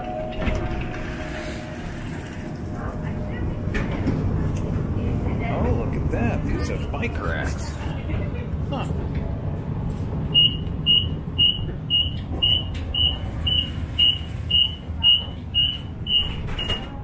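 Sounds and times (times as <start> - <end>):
streetcar low hum: 0.0 - 17.0
rapid high door beeps: 10.3 - 16.9.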